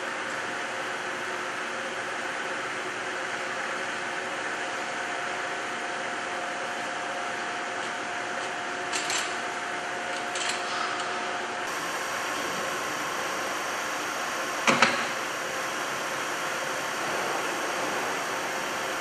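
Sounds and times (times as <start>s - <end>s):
factory machinery hum: 0.0s - 19.0s
steady machine tone: 10.9s - 19.0s.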